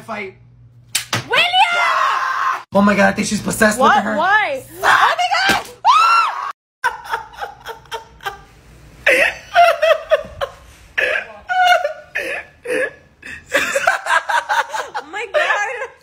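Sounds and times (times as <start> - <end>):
person laughing: 6.8 - 16.0.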